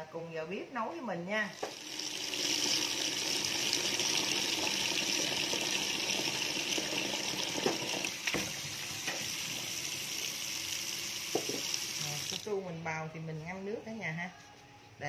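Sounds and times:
tap water pouring into bowl: 0:01.6 - 0:12.5.

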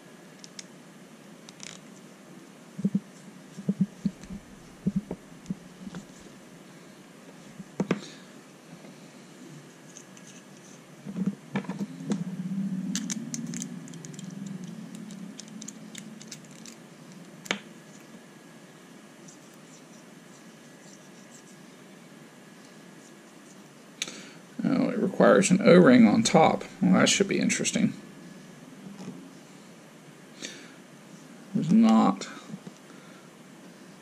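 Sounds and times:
low rubbing handling noise: 0:02.8 - 0:06.7, 0:09.4 - 0:18.1.

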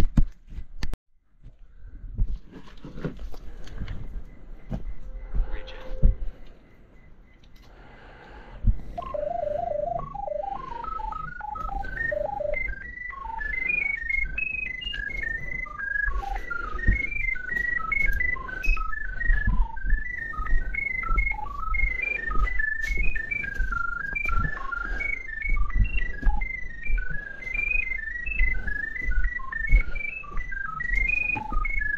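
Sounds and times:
short beeps changing pitch: 0:09.0 - 0:31.9.

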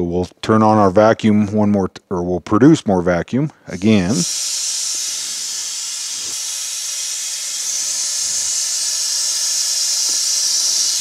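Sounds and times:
air hissing through tool: 0:03.6 - 0:11.0.

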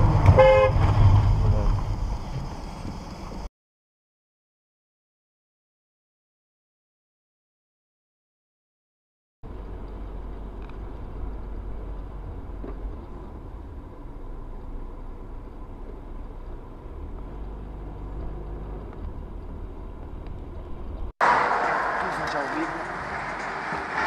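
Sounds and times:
car engine and tyre rumble: 0:00.0 - 0:03.5, 0:09.4 - 0:24.0.

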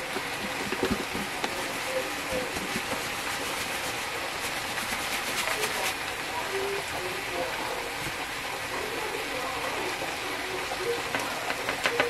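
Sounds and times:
breading rattling in a bowl: 0:00.0 - 0:06.1.

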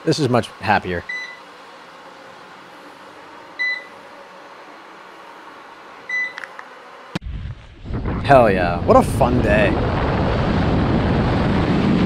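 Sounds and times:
short high beeps: 0:01.1 - 0:01.4, 0:03.6 - 0:04.0, 0:06.1 - 0:06.4.

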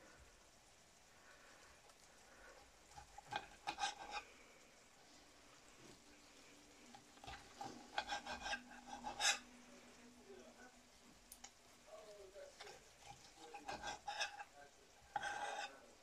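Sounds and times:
knife sawing through food: 0:02.9 - 0:04.3, 0:06.9 - 0:09.5, 0:12.6 - 0:15.9
knife scraping on plate: 0:02.9 - 0:04.3, 0:07.1 - 0:09.5, 0:12.6 - 0:15.9.

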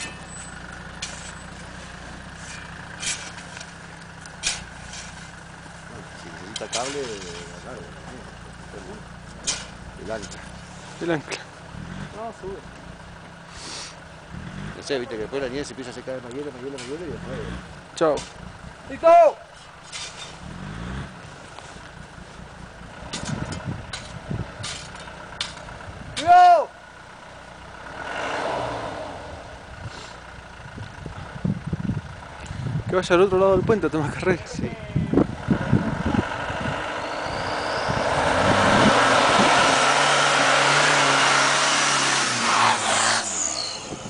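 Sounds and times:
tyres churning snow: 0:00.0 - 0:26.8, 0:27.6 - 0:31.3, 0:32.3 - 0:44.0
car engine running: 0:00.0 - 0:44.0
shovel scraping snow: 0:02.4 - 0:03.6, 0:04.4 - 0:05.3.

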